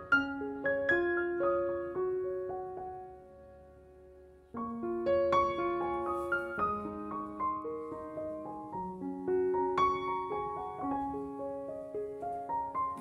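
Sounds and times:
soft piano music: 0:00.0 - 0:13.0.

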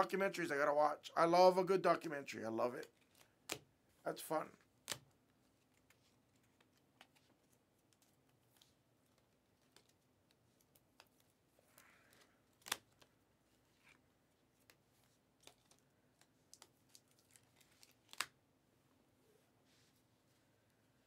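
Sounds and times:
trading cards being handled: 0:02.7 - 0:03.7, 0:04.5 - 0:18.4.

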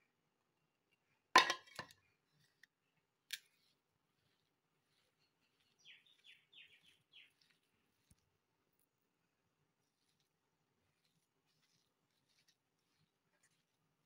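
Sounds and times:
knocks on steel bowl: 0:01.4 - 0:01.9
small bird chirping: 0:03.5 - 0:08.2.

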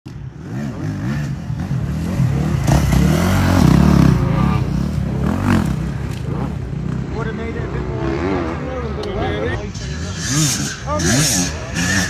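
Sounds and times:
motorcycle engine revving: 0:00.1 - 0:12.0.

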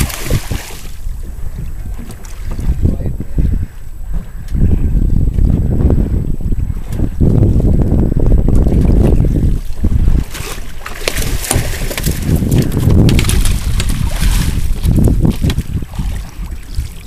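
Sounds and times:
fish thrashing in water: 0:00.0 - 0:01.0, 0:08.6 - 0:17.0
wind rumbling on microphone: 0:00.0 - 0:17.0.

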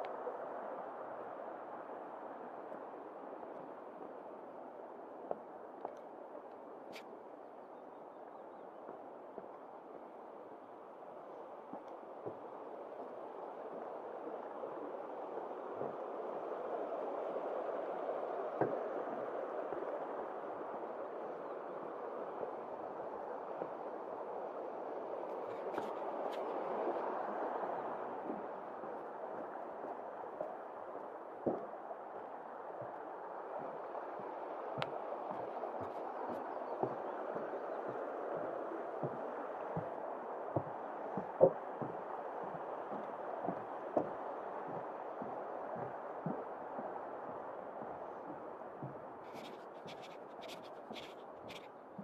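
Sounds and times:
rushing stream water: 0:00.0 - 0:07.5, 0:09.0 - 0:51.8
footsteps on a trail: 0:39.0 - 0:52.0.

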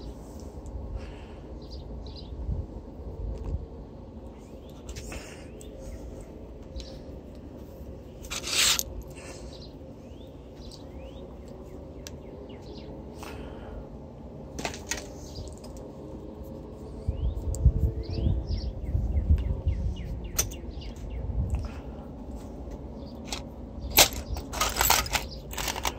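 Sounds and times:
birds chirping: 0:04.4 - 0:07.2, 0:07.9 - 0:13.8, 0:16.9 - 0:22.0.

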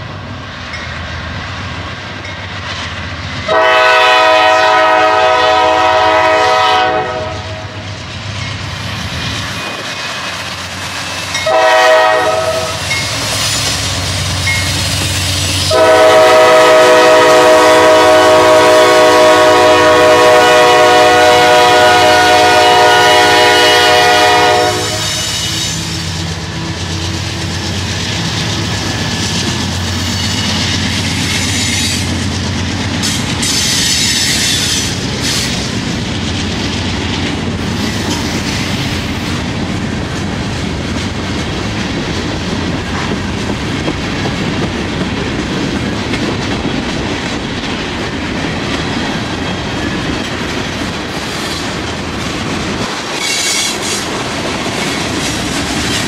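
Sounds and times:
locomotive air horn: 0:03.5 - 0:07.8, 0:11.4 - 0:12.9, 0:15.7 - 0:25.4.

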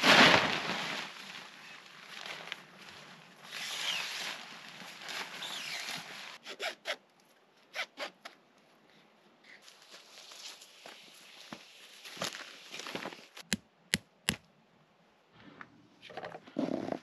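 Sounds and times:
canvas rustling and flapping: 0:00.0 - 0:06.4
strap zipping through buckle: 0:05.4 - 0:07.0.

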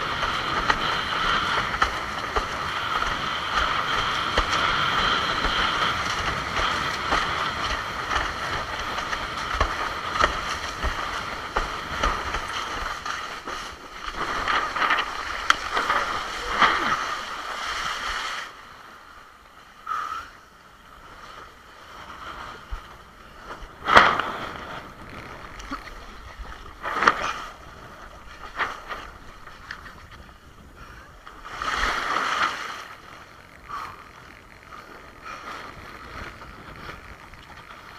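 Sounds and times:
water splashing against board: 0:00.0 - 0:18.6
rush of water and wind: 0:00.0 - 0:37.9.

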